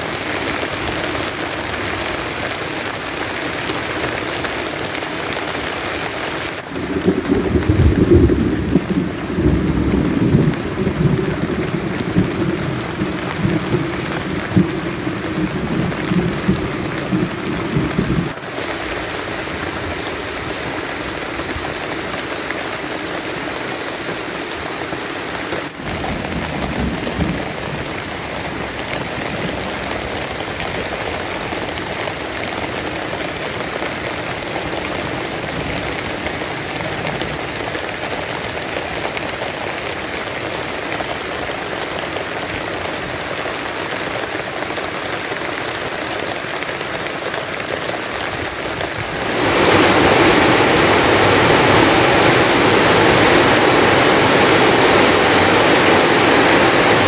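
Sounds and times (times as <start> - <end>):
rain on tarpaulin and leaves: 0.0 - 57.0
low thunder rumble: 6.7 - 18.4.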